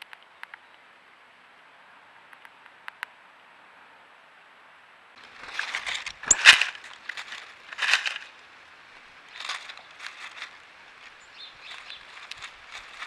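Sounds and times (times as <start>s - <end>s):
seed crunching and rustling: 5.2s - 8.4s, 9.3s - 13.0s.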